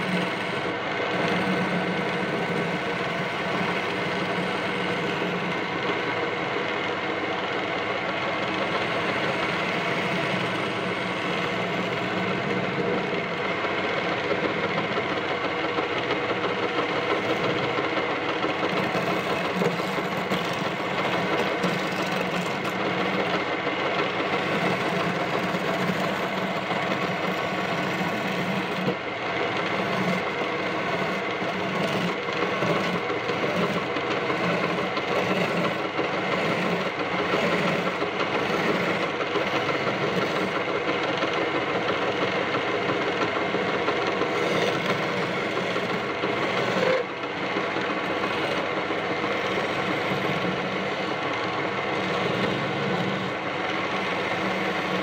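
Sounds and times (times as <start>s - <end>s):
turning tool scraping wood: 0.0s - 6.4s, 8.4s - 55.0s
wood lathe running: 0.0s - 55.0s.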